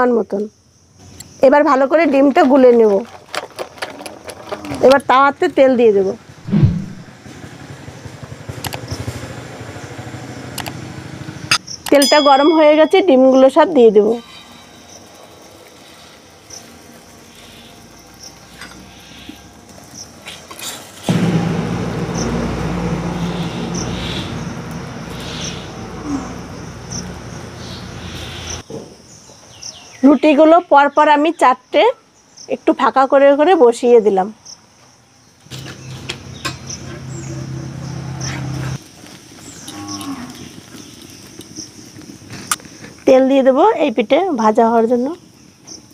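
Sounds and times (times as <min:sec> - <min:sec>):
egg sizzling in hot oil: 0:38.8 - 0:43.0.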